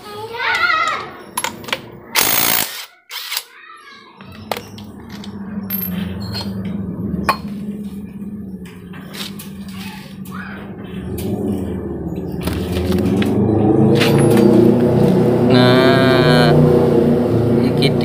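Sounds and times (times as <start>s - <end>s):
impact wrench burst: 2.2s - 3.5s
steady low hum: 4.3s - 18.0s.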